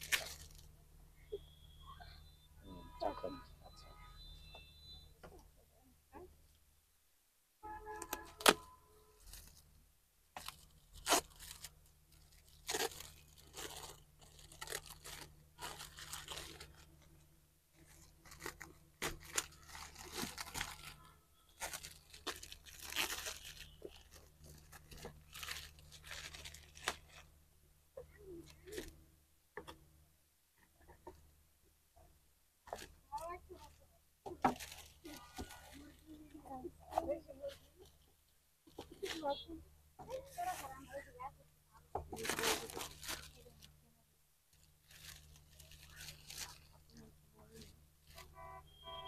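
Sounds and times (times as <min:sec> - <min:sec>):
wrapping paper tearing and crinkling: 0:00.0 - 0:00.7, 0:07.9 - 0:09.6, 0:10.3 - 0:27.3, 0:32.7 - 0:36.2, 0:41.9 - 0:43.7, 0:44.5 - 0:48.3.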